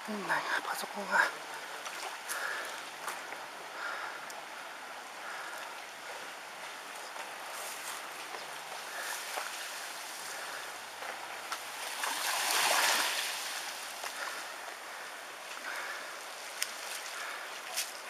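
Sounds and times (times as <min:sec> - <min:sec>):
floodwater rushing and splashing: 0:00.0 - 0:18.0
faint ticks: 0:16.5 - 0:17.1.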